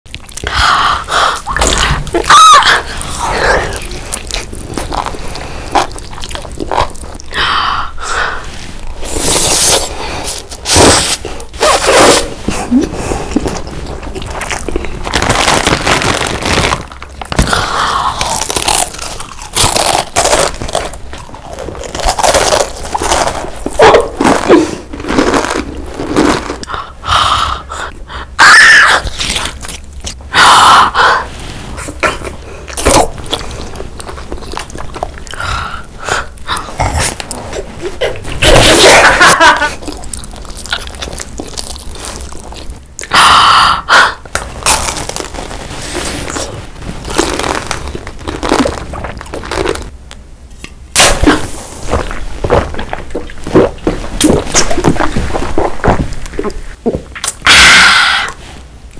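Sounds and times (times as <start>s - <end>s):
chewing: 0.1s - 7.3s, 32.2s - 35.4s
crunchy chip bites: 14.2s - 26.8s, 47.1s - 49.9s.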